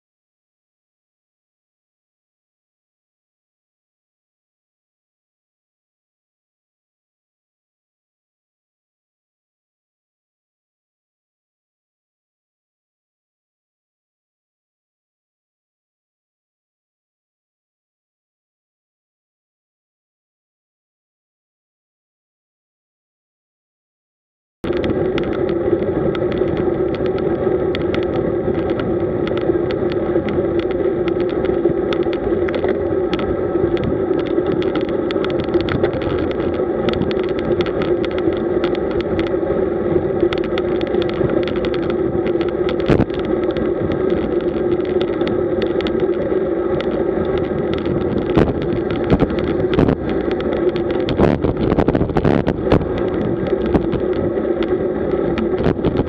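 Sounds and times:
bicycle tyre noise: 24.6 - 56.0
wind rush: 24.6 - 56.0.

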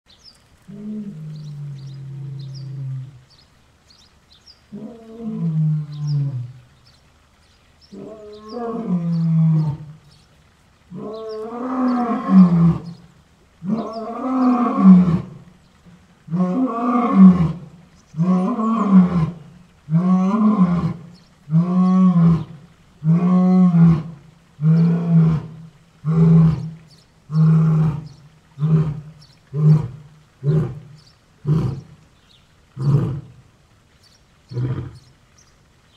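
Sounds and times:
lion roaring and grunting: 16.3 - 31.9.

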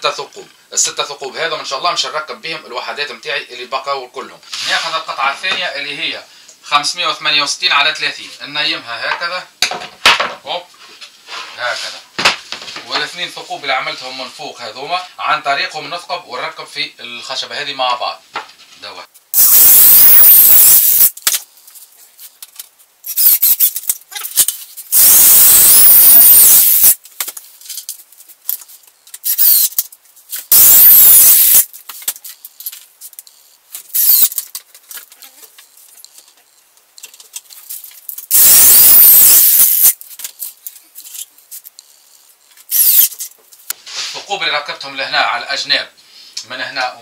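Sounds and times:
electric drill whining: 19.4 - 21.1, 25.0 - 27.0, 29.3 - 29.7, 30.5 - 31.7, 34.0 - 34.3, 38.3 - 40.0, 42.7 - 43.1.

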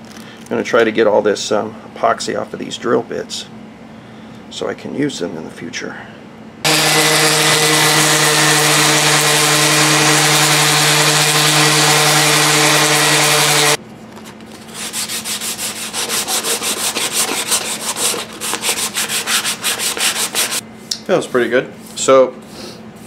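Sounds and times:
hand sanding wood: 6.7 - 13.8, 14.6 - 20.6
power tool motor humming: 6.7 - 13.8.

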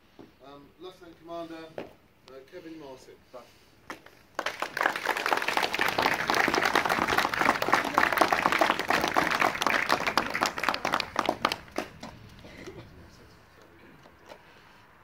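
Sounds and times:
group applauding: 3.9 - 12.8.

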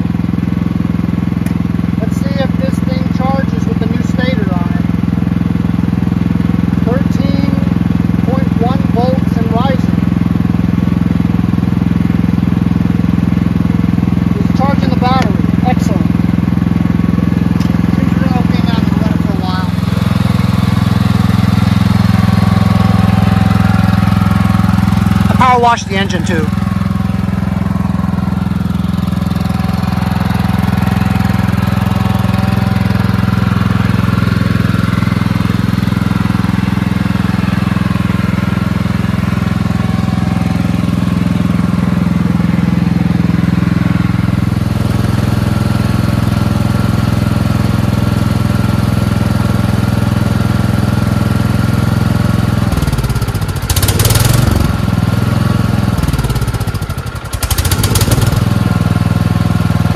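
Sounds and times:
power washer engine running: 0.0 - 59.9.

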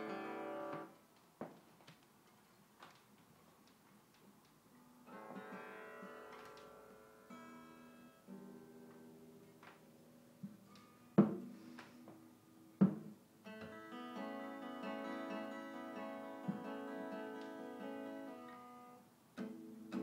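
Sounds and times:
acoustic guitar strumming: 0.0 - 0.9, 13.4 - 20.0
sharp knocks: 12.8 - 13.2.

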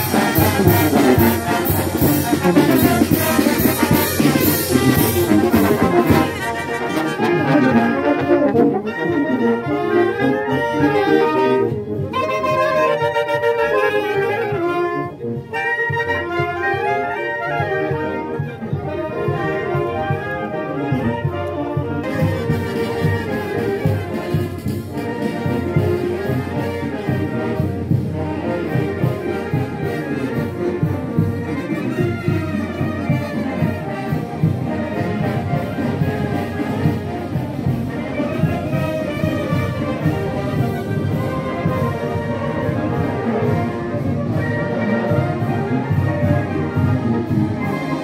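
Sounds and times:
brass band playing: 0.0 - 48.0.

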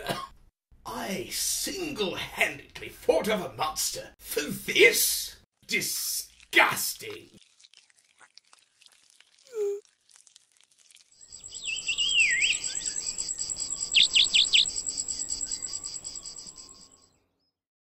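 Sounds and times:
insect chirping: 10.8 - 17.1
bird whistled falling call: 11.4 - 14.8.

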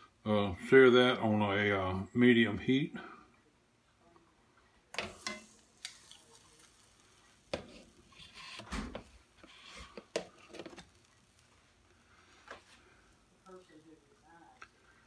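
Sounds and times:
metal tongs clicking on a skillet: 4.9 - 6.9
meat sizzling in a pan: 5.0 - 15.0.

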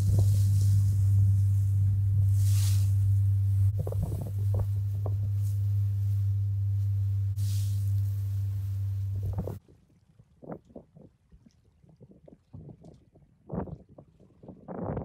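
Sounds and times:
motorboat engine hum: 0.0 - 9.6
water spray hiss: 0.0 - 9.6.

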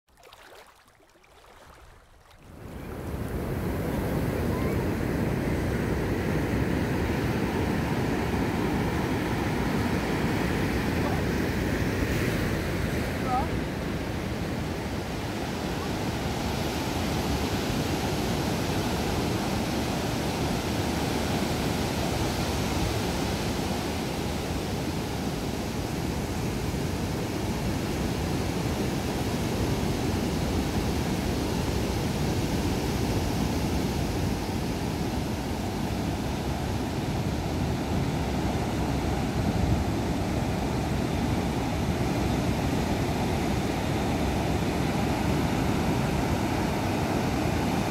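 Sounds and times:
ocean surf rushing: 1.4 - 28.3.

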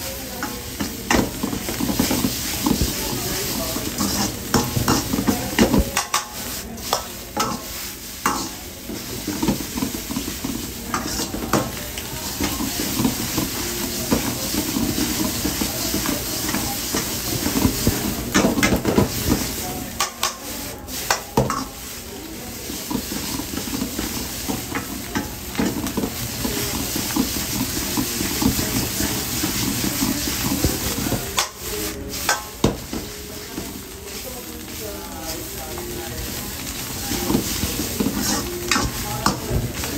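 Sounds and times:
noodles sizzling in a wok: 0.0 - 39.9
metal ladle scraping and clanking wok: 0.4 - 8.6, 36.8 - 39.6.

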